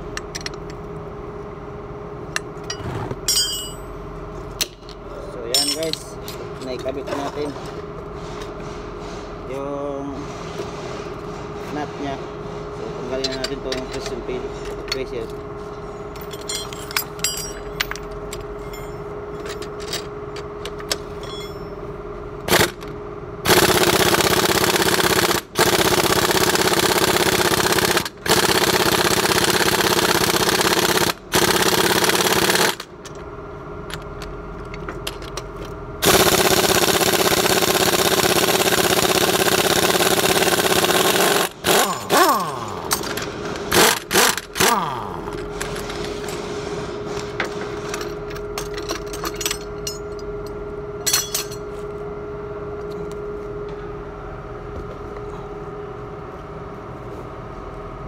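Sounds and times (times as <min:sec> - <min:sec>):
metal parts clinking: 0:02.6 - 0:03.9, 0:05.5 - 0:07.5, 0:16.1 - 0:21.8, 0:41.7 - 0:46.4, 0:47.4 - 0:51.7
pneumatic impact wrench: 0:22.5 - 0:32.9, 0:36.0 - 0:48.0.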